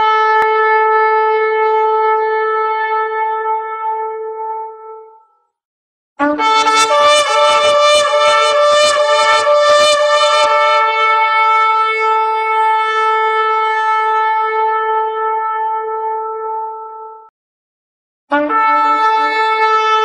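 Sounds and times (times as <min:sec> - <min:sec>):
shofar blasts: 0:06.2 - 0:16.9, 0:18.3 - 0:20.0.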